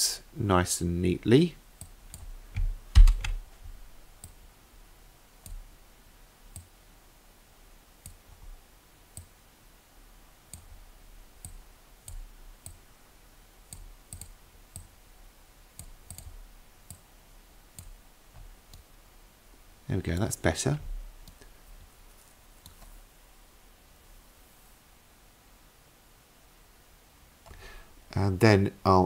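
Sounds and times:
computer mouse clicking: 4.2 - 4.4, 6.5 - 6.7, 10.5 - 10.8, 11.4 - 12.8, 13.7 - 14.9, 15.8 - 17.0, 17.8 - 18.9, 21.2 - 21.5, 22.6 - 23.0.

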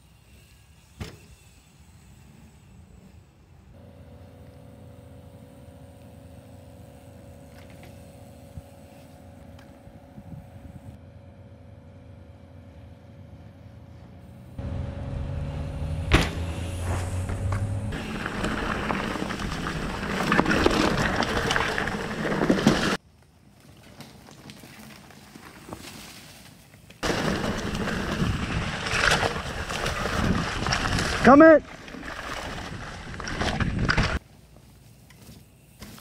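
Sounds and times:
bike tyres rolling over dirt: 4.1 - 11.0, 16.2 - 36.0.

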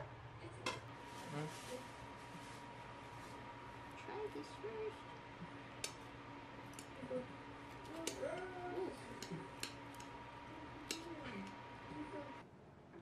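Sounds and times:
faint steady hum: 0.0 - 13.0
chopsticks clicking against a plate: 5.8 - 6.0, 7.7 - 8.2, 9.2 - 10.1, 10.8 - 11.1.

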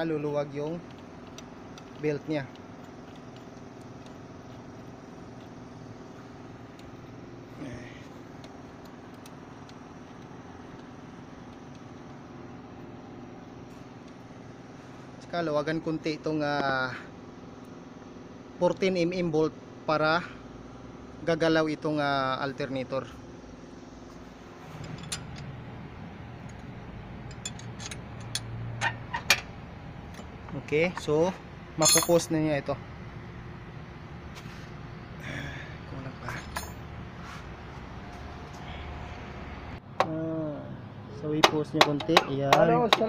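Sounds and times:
vehicle engine idling: 0.0 - 15.2, 23.2 - 41.3
wrench metal clicks and taps: 0.8 - 4.8.

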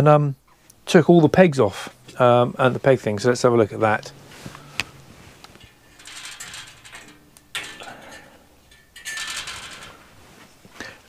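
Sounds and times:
metal parts rattling and scraping: 3.8 - 11.0.

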